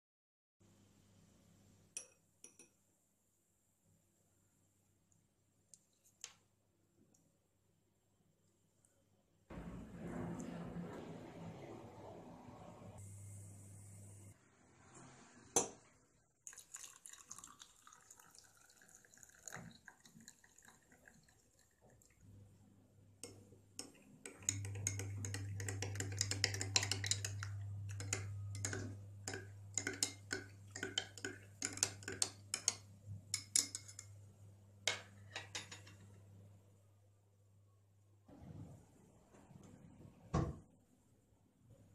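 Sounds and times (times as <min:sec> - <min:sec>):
low steady hum: 0:07.1 - 0:14.4, 0:22.0 - 0:40.3.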